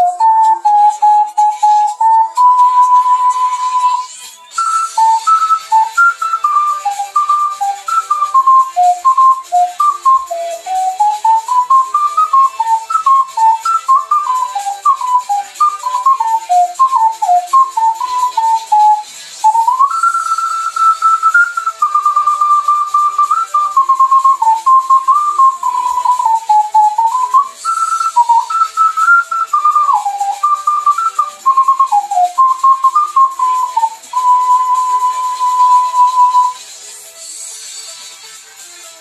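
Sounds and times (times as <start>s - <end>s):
ocarina melody: 0.0s - 36.7s.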